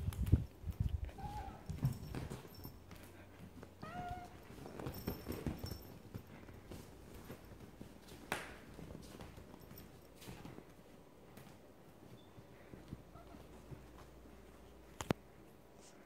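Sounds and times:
cat thumping and rustling on couch: 0:03.5 - 0:10.6
cat meowing: 0:03.8 - 0:04.4.

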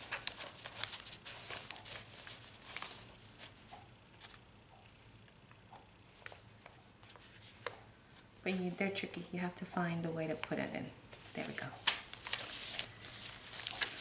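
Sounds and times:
paper rustling and crinkling: 0:00.0 - 0:03.6, 0:10.3 - 0:14.0.

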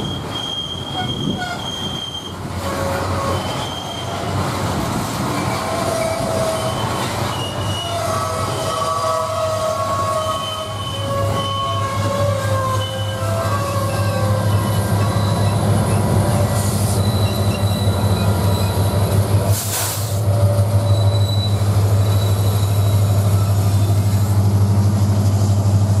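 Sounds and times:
train wheel squeal: 0:00.0 - 0:24.4
diesel locomotive engine droning: 0:00.0 - 0:26.0
short hiss: 0:19.5 - 0:20.2.

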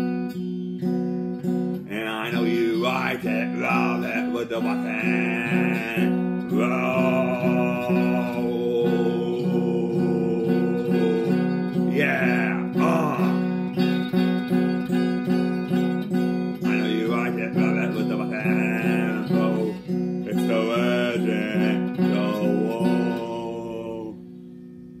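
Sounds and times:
electric guitar strumming: 0:00.0 - 0:25.0
man singing: 0:01.9 - 0:13.9, 0:16.5 - 0:24.2.

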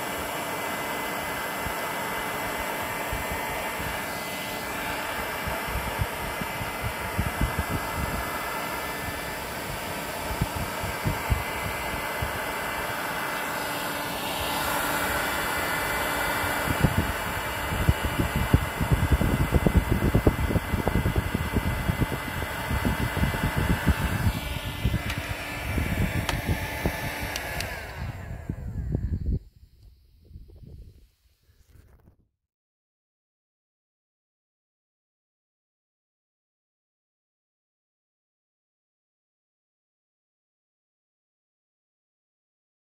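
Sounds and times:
hot-air blower hissing: 0:00.0 - 0:31.0.

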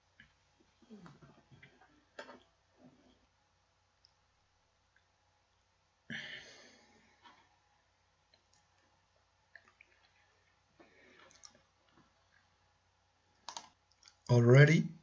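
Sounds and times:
computer mouse clicks: 0:13.4 - 0:14.2.

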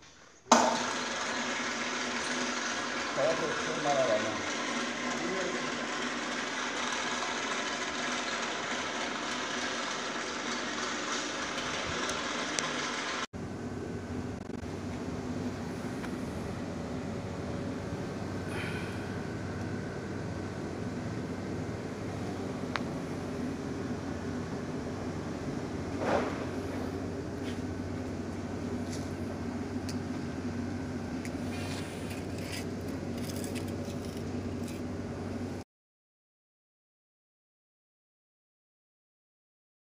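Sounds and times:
faint hum: 0:13.4 - 0:35.6.

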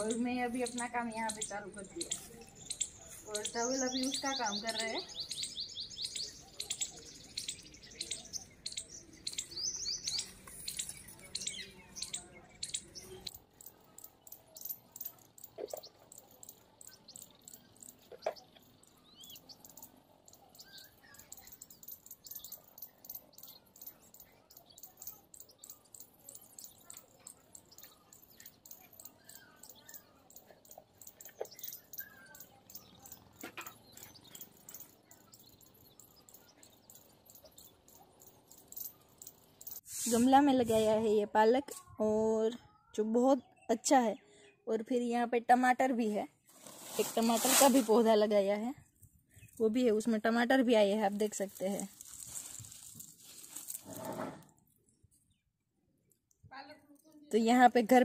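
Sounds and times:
small birds chirping: 0:00.0 - 0:58.0.

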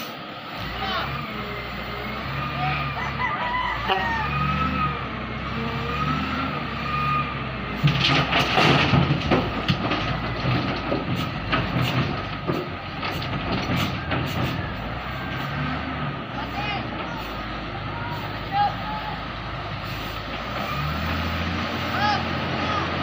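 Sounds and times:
diesel engine running: 0:00.0 - 0:23.0
rush of falling dirt and rubble: 0:07.7 - 0:16.0
stones knocking in truck bed: 0:07.9 - 0:14.4.

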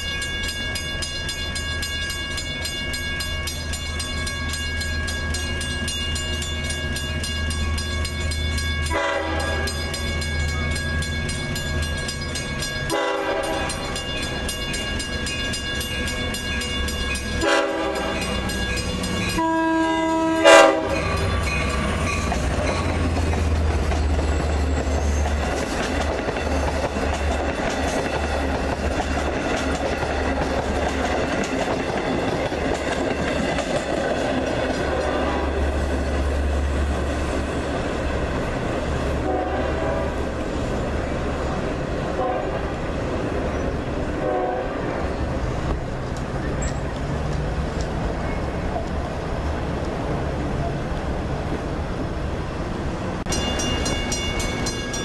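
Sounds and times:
crossing bell ringing: 0:00.0 - 0:42.2, 0:53.2 - 0:55.0
train rumbling past on rails: 0:00.0 - 0:55.0
train horn blasts: 0:08.8 - 0:10.0, 0:12.9 - 0:14.0, 0:17.4 - 0:18.7, 0:19.3 - 0:21.6, 0:34.8 - 0:35.6, 0:39.2 - 0:40.4, 0:42.1 - 0:42.7, 0:44.2 - 0:45.0.

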